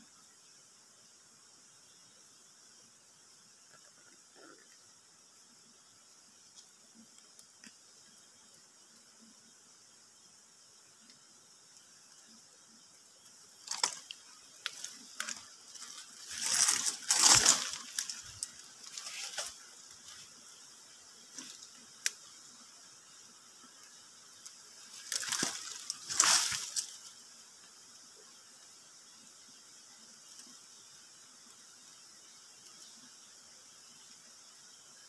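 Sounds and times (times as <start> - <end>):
dry leaves and twigs crunching: 13.6 - 20.3, 24.8 - 27.1.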